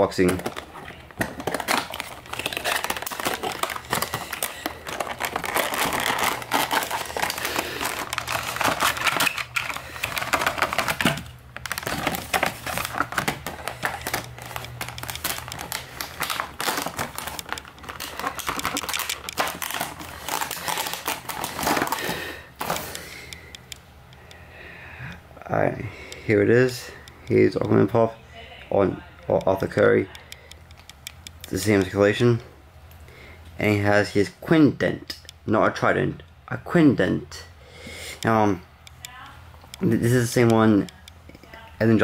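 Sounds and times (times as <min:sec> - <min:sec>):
plastic bag crinkling: 0:00.0 - 0:23.4
box being opened: 0:00.2 - 0:23.1.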